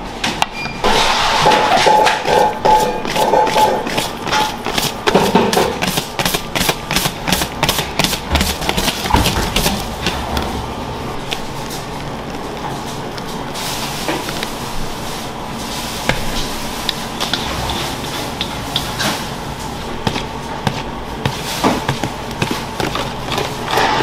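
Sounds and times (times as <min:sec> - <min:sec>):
kitchen background noise: 0:00.0 - 0:24.0
whisk beating in metal bowl: 0:01.4 - 0:09.8, 0:19.8 - 0:24.0.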